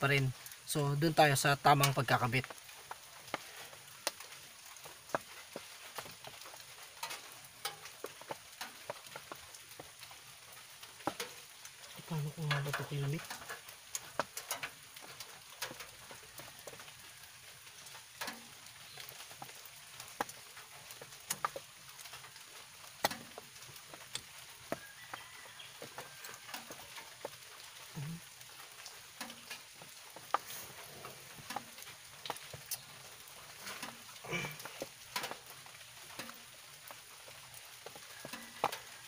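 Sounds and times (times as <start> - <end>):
faint steady hiss: 0.0 - 39.0
small metal clicks and taps: 4.0 - 10.1, 11.0 - 11.4, 12.4 - 16.8, 18.2 - 24.9, 34.6 - 35.5.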